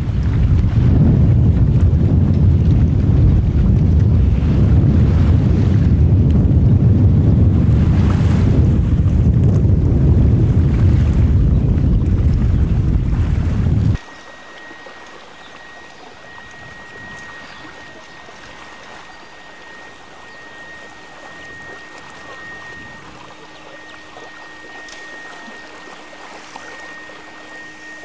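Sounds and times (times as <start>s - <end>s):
lake water lapping: 0.0s - 28.0s
steady high-pitched whine: 0.0s - 28.0s.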